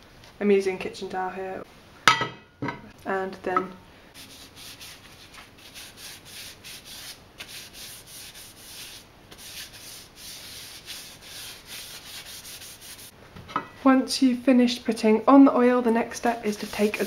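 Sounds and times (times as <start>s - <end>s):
towel rubbing wooden spoon: 4.2s - 13.1s, 16.4s - 17.0s.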